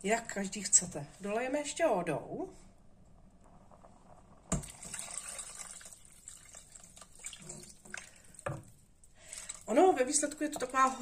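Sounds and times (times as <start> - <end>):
water pouring into a pot: 4.4 - 11.0.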